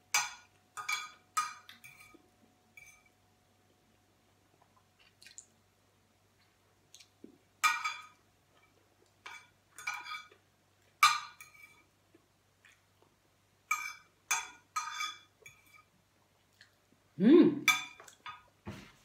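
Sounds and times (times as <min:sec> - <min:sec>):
fork scraping on a plate: 0:14.8 - 0:15.9.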